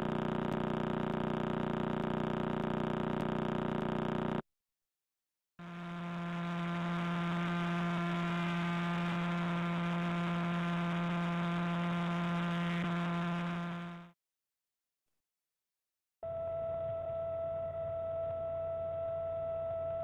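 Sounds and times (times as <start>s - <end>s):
low buzzing drone: 5.6s - 14.1s, 16.2s - 20.0s.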